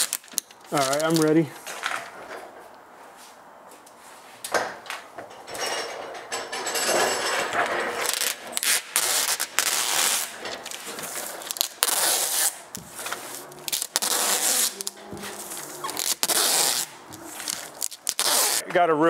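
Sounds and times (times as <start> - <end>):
plastic wrap rustling and crinkling: 0.0 - 2.0, 7.8 - 18.6.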